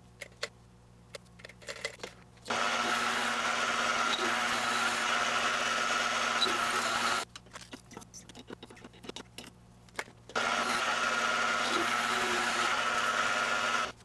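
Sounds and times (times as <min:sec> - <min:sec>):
lathe motor whine: 0:02.5 - 0:07.2, 0:10.4 - 0:14.0.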